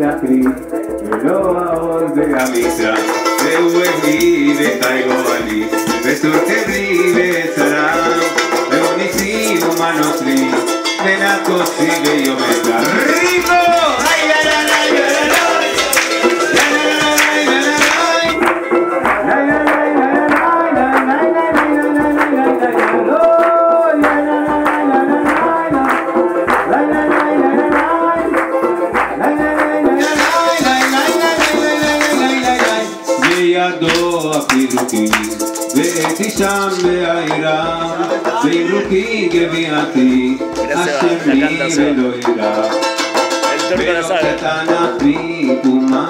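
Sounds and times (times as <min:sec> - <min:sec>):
shaker: 0:00.0 - 0:18.4, 0:24.0 - 0:37.4
hand drum beat: 0:00.0 - 0:46.0
melody instrument playing: 0:40.4 - 0:44.4.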